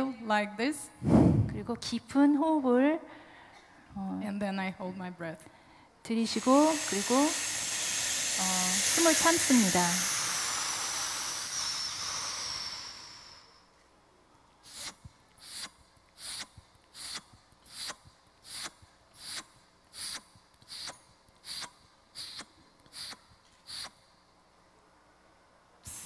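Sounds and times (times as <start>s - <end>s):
short sharp puffs of air: 1.0s - 1.6s, 6.3s - 13.6s, 14.6s - 24.0s
woman hissing breath: 6.4s - 13.7s.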